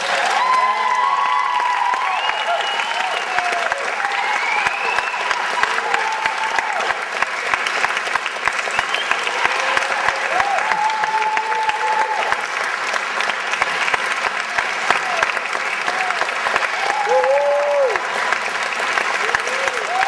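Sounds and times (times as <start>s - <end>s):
voices cheering: 0.0s - 7.2s, 8.7s - 12.6s, 14.6s - 20.0s
audience applauding: 0.0s - 20.0s.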